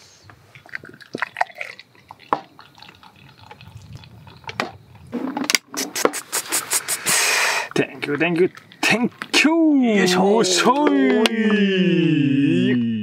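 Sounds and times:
beer pouring into a glass: 0.6s - 4.6s.

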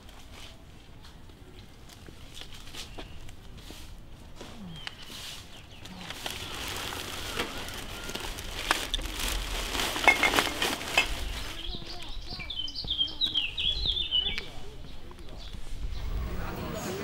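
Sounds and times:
plastic bag rustling and crinkling: 5.0s - 12.6s.

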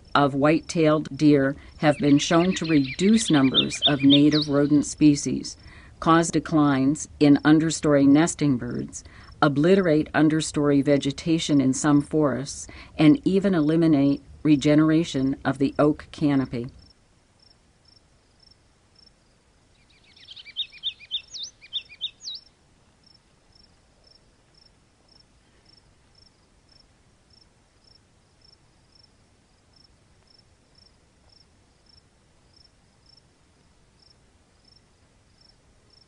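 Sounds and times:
cricket chirping: 16.8s - 33.3s, 34.0s - 36.0s.

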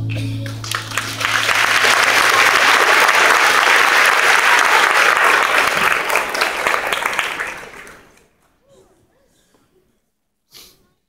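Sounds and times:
audience applauding: 0.4s - 8.3s.

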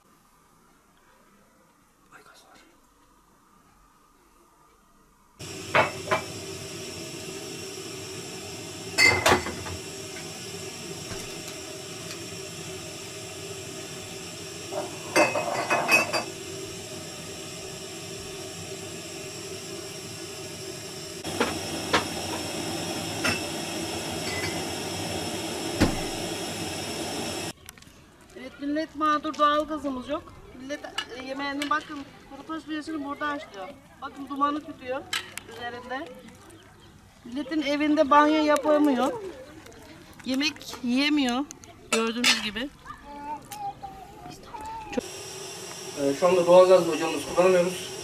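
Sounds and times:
gas burner hissing: 5.4s - 27.6s, 44.4s - 48.0s
metal and dishes clinking: 15.2s - 16.3s.

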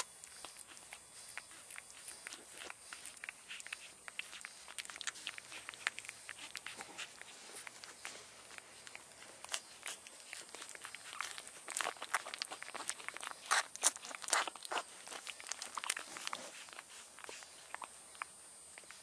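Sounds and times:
puppies suckling: 0.0s - 19.0s.

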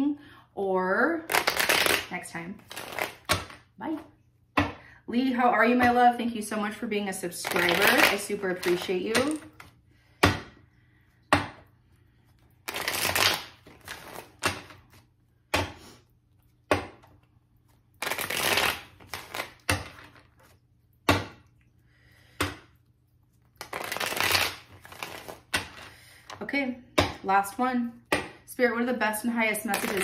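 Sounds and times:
cards being shuffled: 1.3s - 3.6s, 7.4s - 9.3s, 12.6s - 15.0s, 18.0s - 20.6s, 23.6s - 26.4s, 29.6s - 30.0s.

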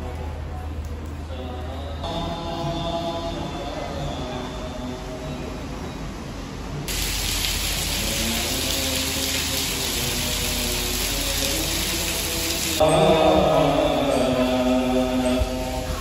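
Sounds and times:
faint chanting: 0.0s - 5.8s, 7.8s - 16.0s
heavy rain on stone paving: 6.9s - 16.0s.

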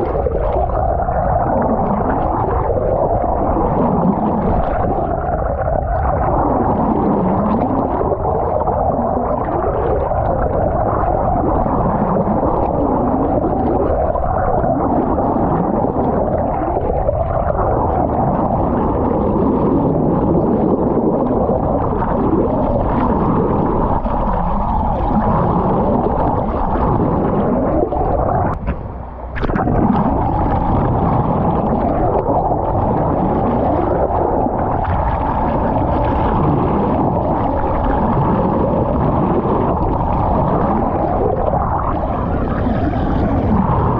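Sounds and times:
underwater water noise: 0.0s - 43.9s
low swooping sounds: 26.9s - 32.4s.

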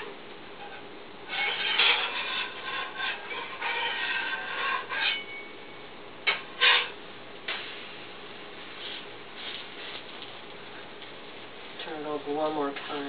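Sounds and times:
spatula scraping griddle: 0.6s - 5.5s, 6.3s - 7.8s.

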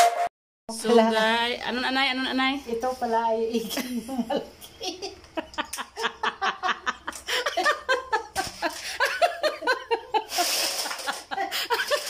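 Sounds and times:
woman laughing: 3.6s - 12.0s.

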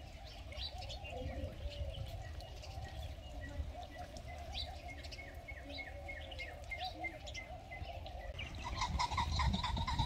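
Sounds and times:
birds chirping: 0.0s - 10.0s.

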